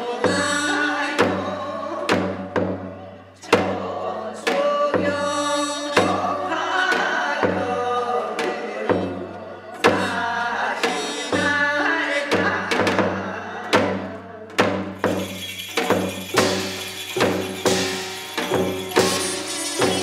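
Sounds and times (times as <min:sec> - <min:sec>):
woman singing: 0:00.0 - 0:02.6, 0:03.3 - 0:14.6
drum strikes: 0:00.3 - 0:05.3, 0:12.3 - 0:20.0.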